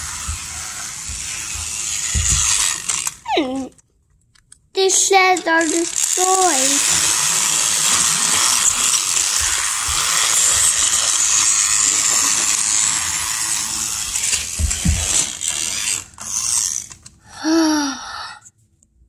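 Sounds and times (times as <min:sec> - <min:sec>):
toy train motor whirring: 0:00.0 - 0:03.8, 0:04.8 - 0:18.4.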